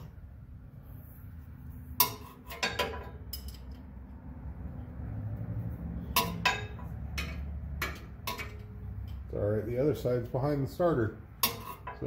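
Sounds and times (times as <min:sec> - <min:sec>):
low steady hum: 0:00.0 - 0:12.0
tools clinking on metal: 0:02.0 - 0:03.9, 0:06.1 - 0:09.3, 0:11.4 - 0:12.0.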